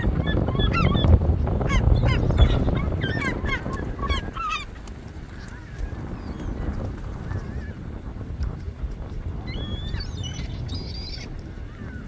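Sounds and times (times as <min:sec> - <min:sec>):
gulls squawking: 0:00.0 - 0:07.8.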